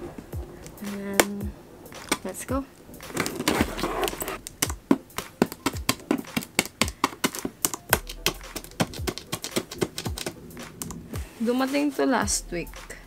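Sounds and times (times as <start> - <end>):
packing tape and cardboard crackling: 3.0 - 11.0.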